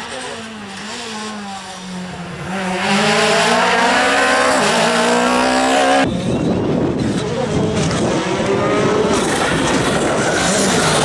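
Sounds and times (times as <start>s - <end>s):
rally car engine at high revs: 0.0s - 11.0s.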